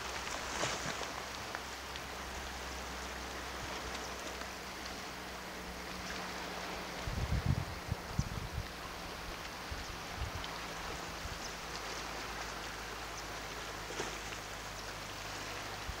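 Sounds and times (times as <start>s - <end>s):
sea lapping against rocks: 0.0s - 5.0s, 8.5s - 16.0s
water drips and splashes: 0.0s - 16.0s.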